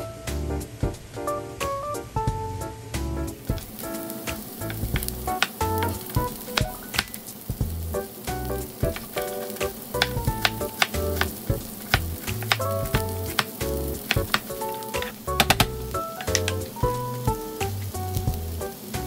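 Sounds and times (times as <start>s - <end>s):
background music: 0.0s - 19.0s
knife chopping on cutting board: 8.8s - 16.6s.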